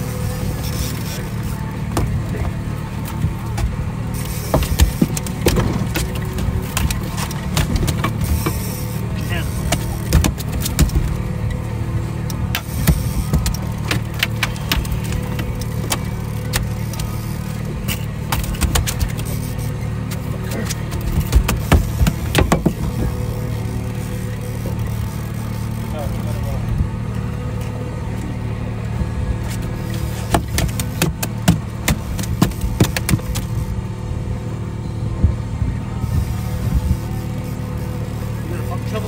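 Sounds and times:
outboard motor running: 0.0 - 39.0
fishing gear clicks and knocks: 1.9 - 11.2, 12.3 - 23.2.

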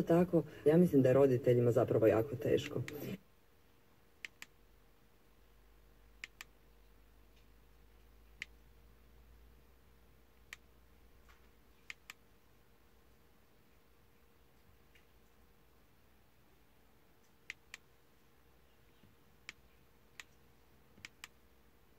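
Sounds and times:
faint steady hum: 0.0 - 21.9.

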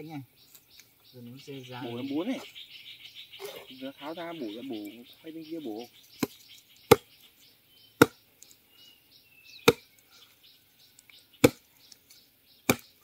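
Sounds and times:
insects chirping: 0.0 - 13.0
blade chopping bamboo: 6.2 - 7.1, 8.0 - 8.2, 9.6 - 9.9, 11.4 - 11.7, 12.6 - 13.0.

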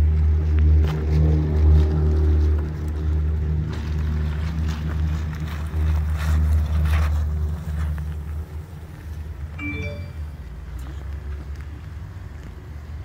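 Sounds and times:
engine and tyre hum: 0.0 - 13.0
brief high chirp: 9.6 - 10.3.

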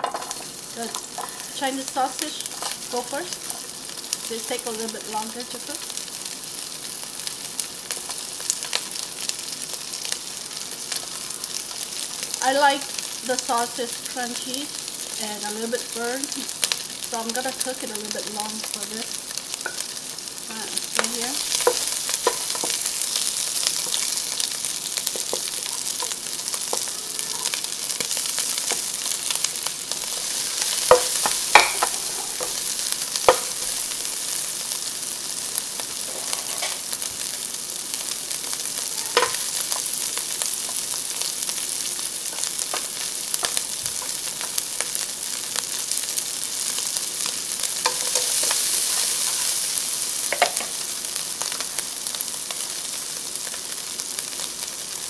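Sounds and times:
sausage sizzling in oil: 0.0 - 55.0
spatula scraping and tapping pan: 21.0 - 27.6, 29.9 - 33.8, 39.2 - 39.9, 47.8 - 49.5.

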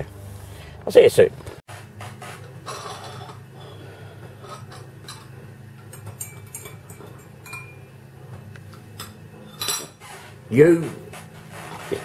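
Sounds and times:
spoon clinking in ceramic mug: 5.9 - 7.9.

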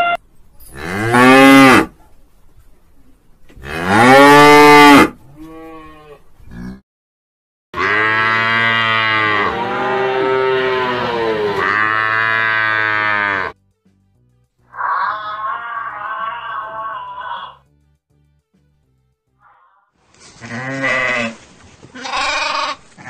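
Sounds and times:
cattle mooing: 7.8 - 13.6.

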